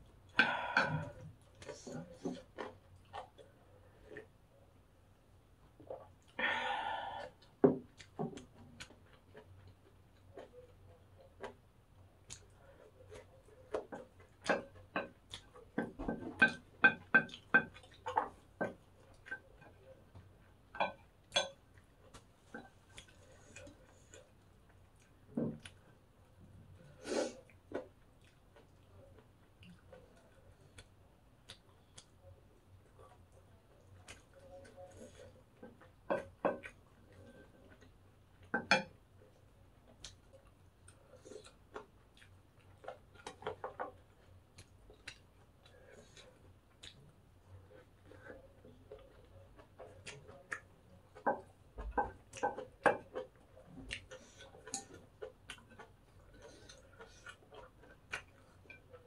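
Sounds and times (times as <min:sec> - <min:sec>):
chewing: 0:00.0 - 0:04.8, 0:05.5 - 0:59.0.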